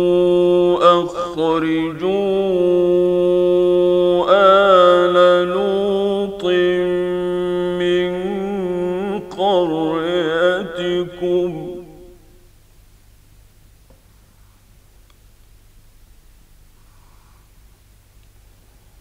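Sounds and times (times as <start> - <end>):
man chanting melodically: 0.0 - 12.5.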